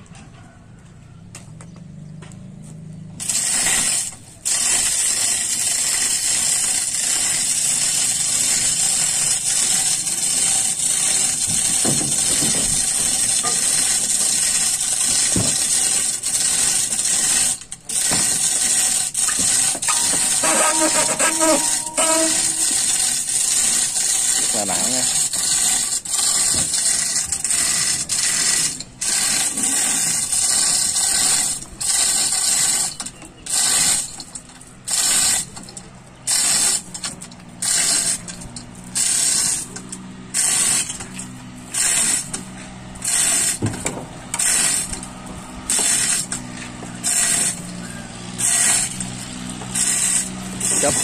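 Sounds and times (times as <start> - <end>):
hoist chain rattling: 3.2 - 51.0
pawl ratcheting: 3.2 - 51.0.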